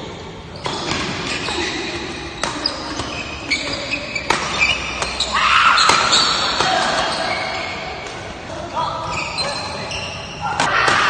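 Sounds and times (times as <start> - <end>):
shoes squeaking on court: 0.5 - 8.3, 9.0 - 10.4
racket hitting shuttlecock: 2.2 - 7.2.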